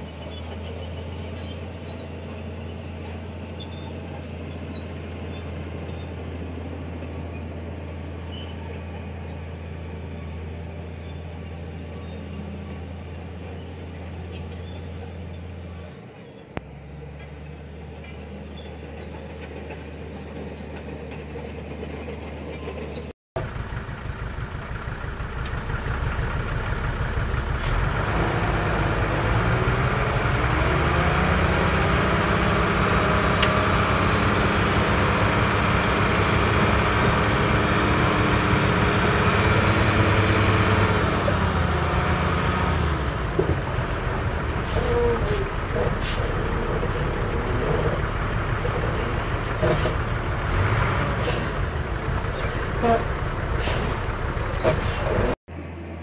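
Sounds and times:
heavy diesel engine running: 0:23.4 - 0:55.4.

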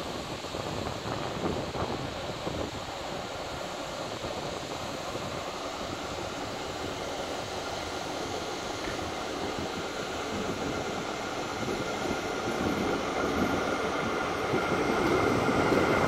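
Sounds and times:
diesel locomotive engine hum: 0:00.0 - 0:16.0.

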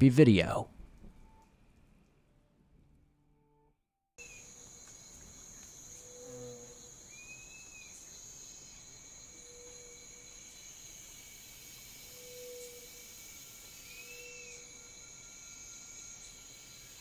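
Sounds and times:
insects trilling: 0:04.2 - 0:17.0.

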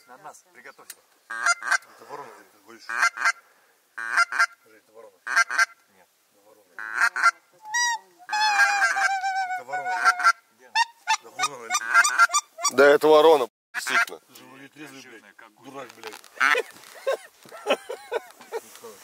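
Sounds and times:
goose call honks: 0:01.3 - 0:01.9, 0:02.8 - 0:03.4, 0:04.0 - 0:04.6, 0:05.2 - 0:05.8, 0:06.8 - 0:13.0, 0:13.8 - 0:14.1, 0:16.4 - 0:16.6.

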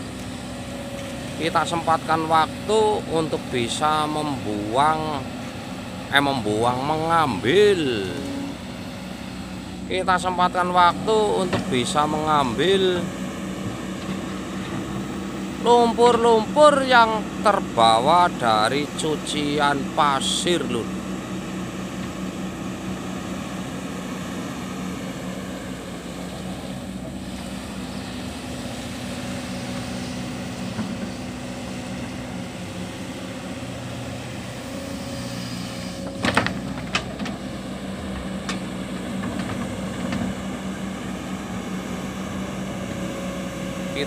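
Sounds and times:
excavator diesel engine running: 0:00.0 - 0:44.0.

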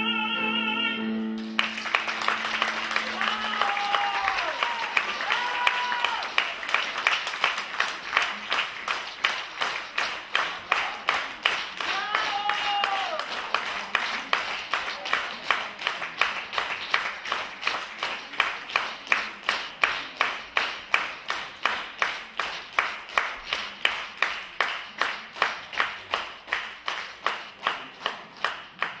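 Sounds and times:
audience clapping in unison: 0:01.4 - 0:29.0.

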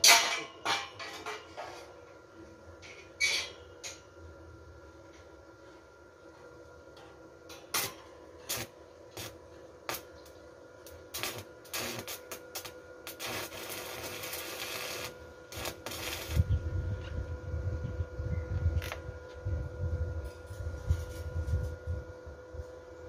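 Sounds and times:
welding arc crackling: 0:07.7 - 0:16.5.

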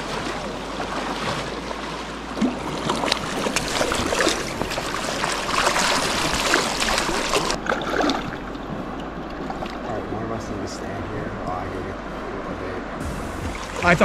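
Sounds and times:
small water splashes: 0:00.0 - 0:10.1
creek water rushing: 0:00.0 - 0:14.0.

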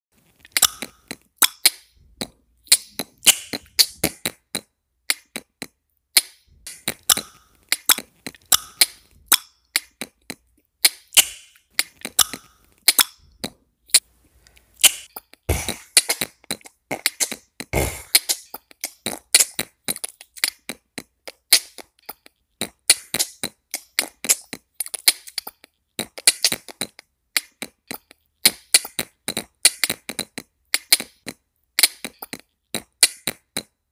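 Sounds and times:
beatboxing mouth clicks and pops: 0:00.3 - 0:33.9
deep kick-like beatbox hits: 0:15.5 - 0:16.0, 0:17.8 - 0:18.2.

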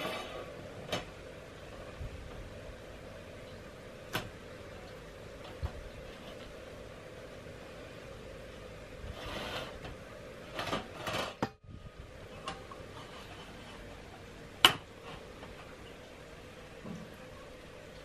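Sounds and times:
metal tart pan scraping and rattling: 0:09.1 - 0:11.6, 0:12.4 - 0:13.9.

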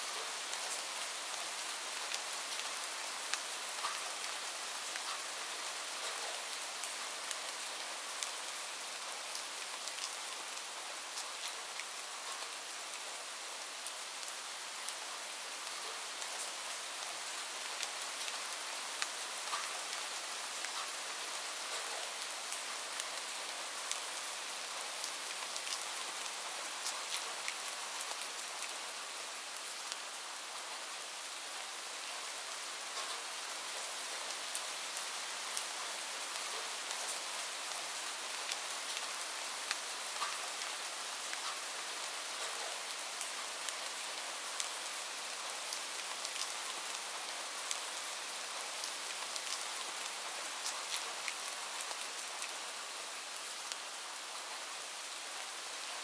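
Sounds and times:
light rain hissing: 0:00.0 - 0:56.0
raindrop ticks: 0:03.3 - 0:04.1, 0:19.0 - 0:19.8, 0:39.7 - 0:40.4.

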